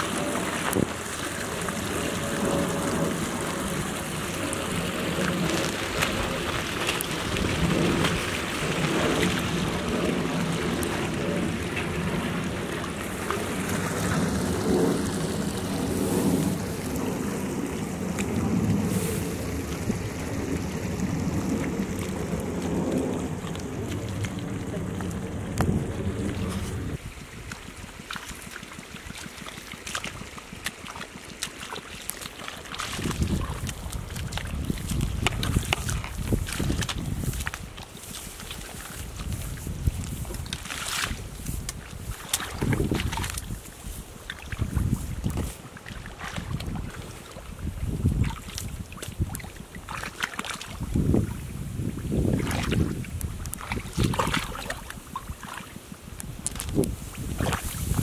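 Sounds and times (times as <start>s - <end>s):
bare feet squelching in mud: 0.0s - 16.9s, 21.3s - 58.0s
low rumble: 0.0s - 30.7s
muddy water sloshing: 0.0s - 58.0s
small sharp splashes and drips: 0.0s - 58.0s.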